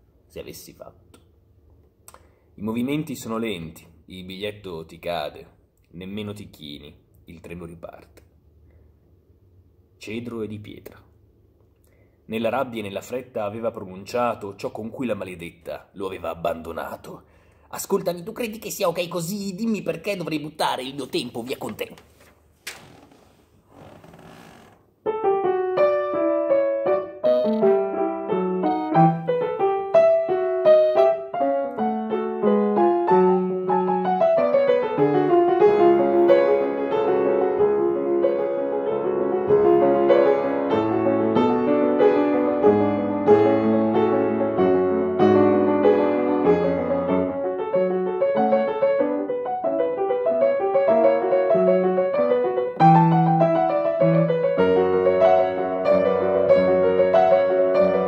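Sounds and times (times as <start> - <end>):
solo grand piano: 25.0 - 58.0.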